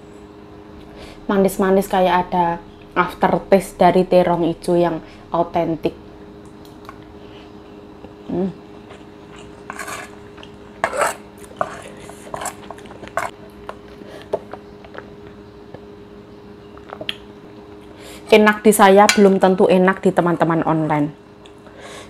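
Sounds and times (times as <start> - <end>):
chewing: 8.8 - 9.7
metal spoon scraping ceramic plate: 9.4 - 10.2, 10.8 - 13.3.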